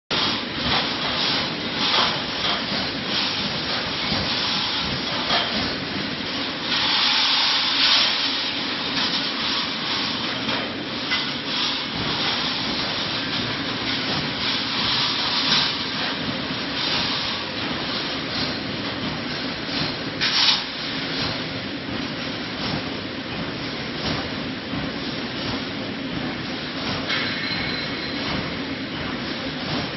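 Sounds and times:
welding machine running: 0:00.1 - 0:22.8.

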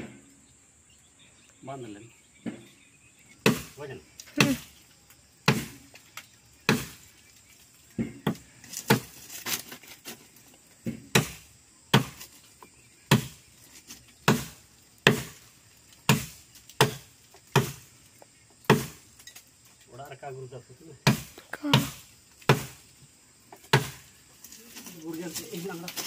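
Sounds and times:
axe chopping tree trunk: 0:03.4 - 0:03.8, 0:05.4 - 0:05.9, 0:06.6 - 0:07.1, 0:08.0 - 0:09.7, 0:10.8 - 0:12.4, 0:13.1 - 0:13.5, 0:14.2 - 0:17.9, 0:18.6 - 0:19.0, 0:21.0 - 0:22.8, 0:23.5 - 0:24.1.

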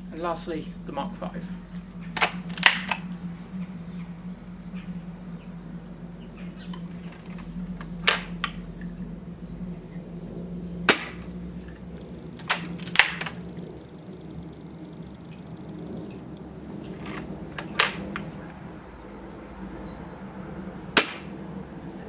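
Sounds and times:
air rifle metallic clicks: 0:02.2 - 0:03.1, 0:06.7 - 0:08.6, 0:12.4 - 0:13.4, 0:16.4 - 0:18.4.

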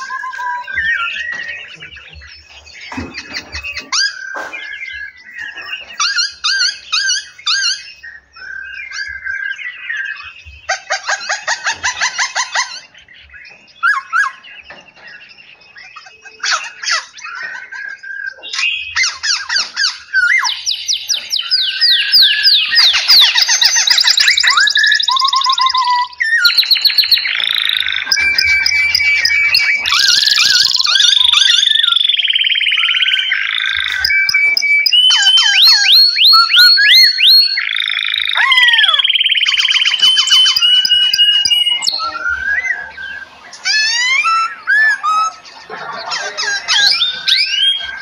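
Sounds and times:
songbirds calling and singing: 0:00.0 - 0:48.0.

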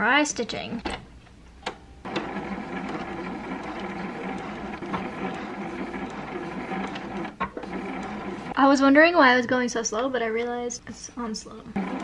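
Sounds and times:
sewing machine stitching: 0:02.1 - 0:08.6, 0:11.8 - 0:12.0.

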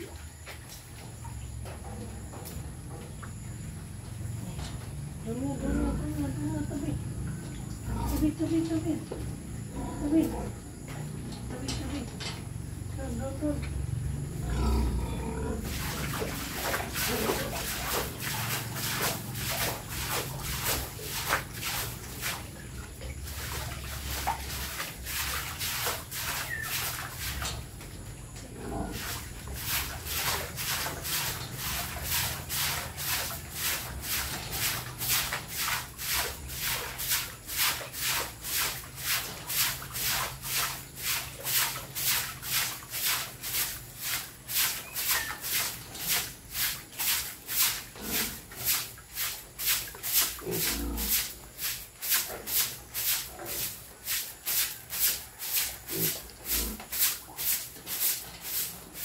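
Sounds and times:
broom sweeping floor: 0:15.6 - 0:28.0, 0:28.8 - 0:59.0.

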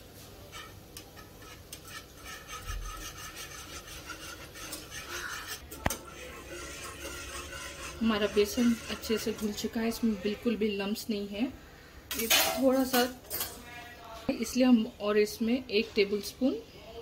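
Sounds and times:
wire whisk beating batter in pot: 0:00.4 - 0:10.6.

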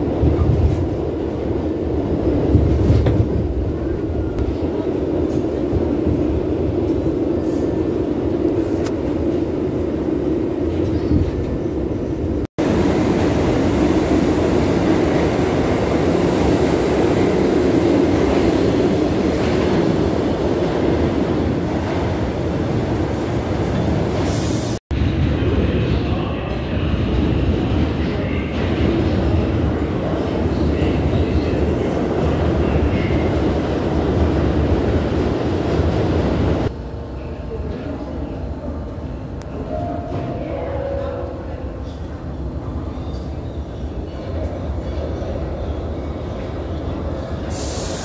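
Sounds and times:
subway car rumbling: 0:00.0 - 0:48.0.

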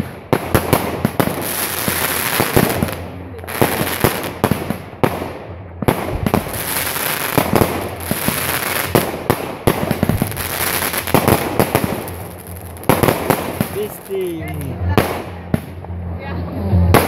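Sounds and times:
fireworks crackling: 0:00.0 - 0:15.9
fireworks bangs: 0:00.0 - 0:16.0, 0:16.8 - 0:17.0.

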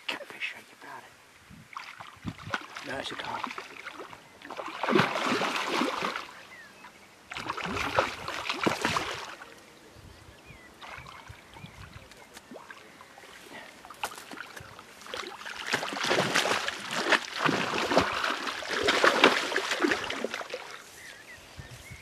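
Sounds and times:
fish splashing at water surface: 0:03.4 - 0:06.3, 0:07.3 - 0:09.4, 0:13.9 - 0:20.8.

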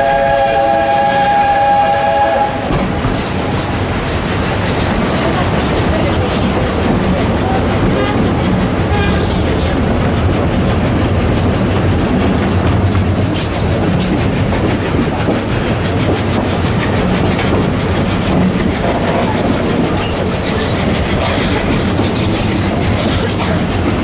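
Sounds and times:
train wheels rumbling on rail: 0:00.0 - 0:24.0
wheels clicking over rail joints: 0:02.7 - 0:24.0
wheel squeal: 0:17.5 - 0:18.2, 0:20.0 - 0:23.6.

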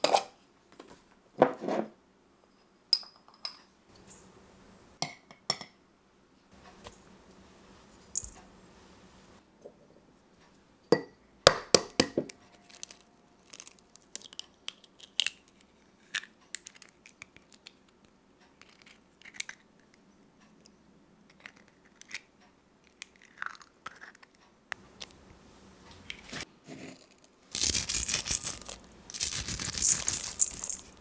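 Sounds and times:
eggshell crackles: 0:12.6 - 0:20.0, 0:21.3 - 0:25.3, 0:27.1 - 0:31.0.

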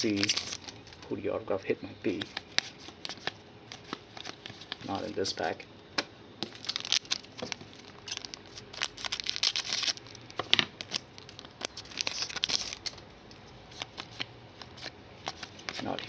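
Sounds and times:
foil wrapper crinkling and tearing: 0:00.0 - 0:01.1, 0:02.1 - 0:05.3, 0:06.4 - 0:13.0, 0:13.7 - 0:16.0
cards clicking: 0:02.1 - 0:02.5.

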